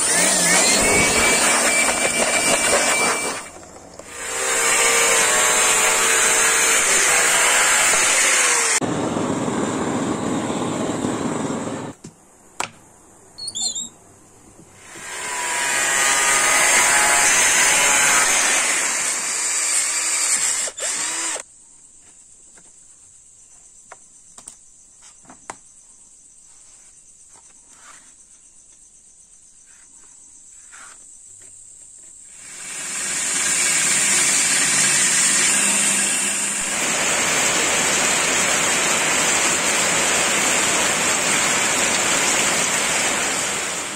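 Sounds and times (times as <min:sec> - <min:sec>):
heavy rain on plants: 0:36.6 - 0:43.9.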